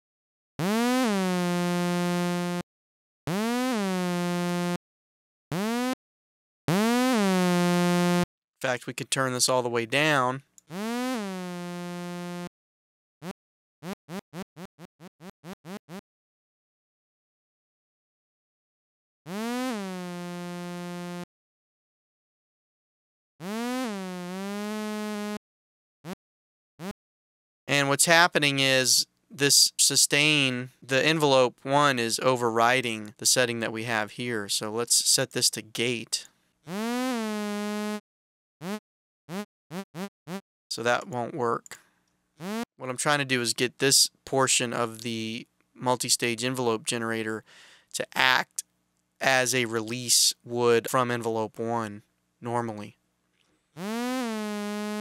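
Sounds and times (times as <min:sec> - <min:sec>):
buzzy synthesizer note: 0:00.6 - 0:02.6, 0:03.3 - 0:04.8, 0:06.7 - 0:08.2, 0:10.7 - 0:12.5, 0:19.3 - 0:21.3, 0:23.4 - 0:25.4, 0:36.7 - 0:38.0, 0:53.8 - 0:55.0
buzzy synthesizer notes swooping: 0:10.7 - 0:12.5, 0:19.3 - 0:21.2, 0:36.7 - 0:38.0, 0:53.8 - 0:55.0.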